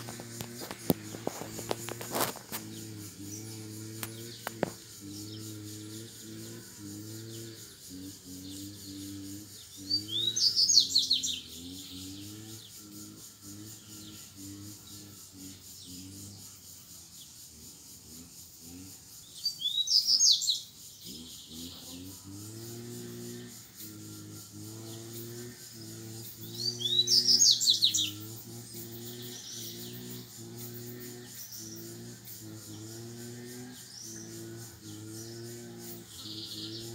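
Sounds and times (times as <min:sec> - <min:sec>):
low droning hum: 0:00.0 - 0:10.5
bird singing chattering notes: 0:00.0 - 0:36.9.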